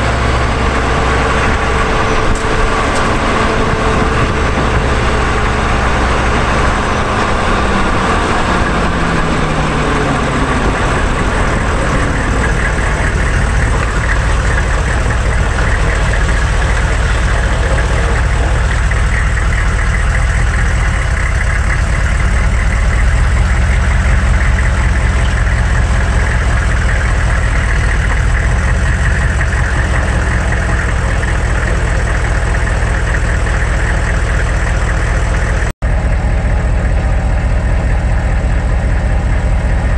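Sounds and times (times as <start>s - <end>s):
tyres rolling on gravel: 0.0s - 35.7s
diesel truck engine: 0.0s - 39.9s.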